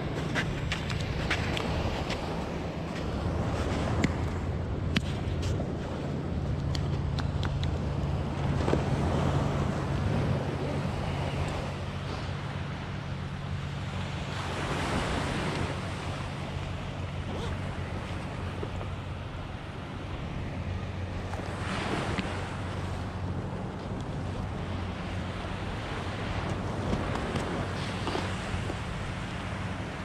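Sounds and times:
small waves washing on sand: 0.0 - 30.0
wind rumbling on microphone: 0.0 - 30.0.

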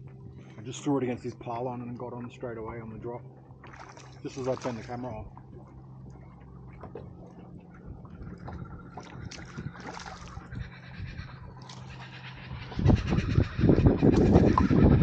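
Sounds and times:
steady low hum: 0.0 - 15.0
water lapping against kayak hull: 0.0 - 15.0.

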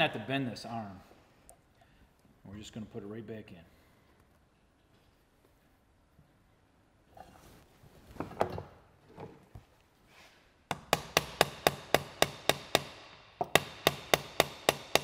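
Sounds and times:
hammer striking metal: 10.7 - 15.0.

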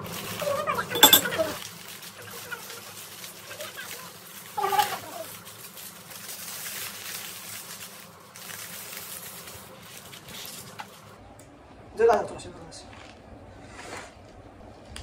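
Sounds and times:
aluminium foil crinkling: 2.3 - 11.1.

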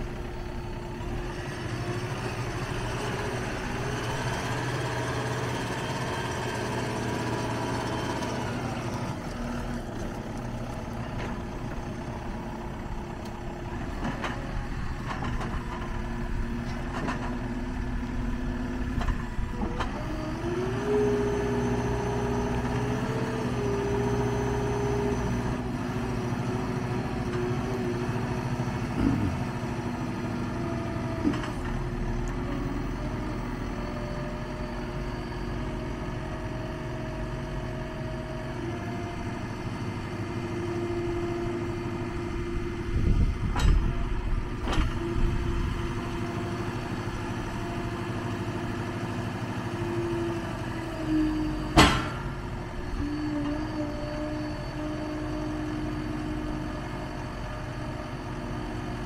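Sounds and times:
diesel engine running: 0.0 - 59.0
hydraulic whine: 28.8 - 59.0.

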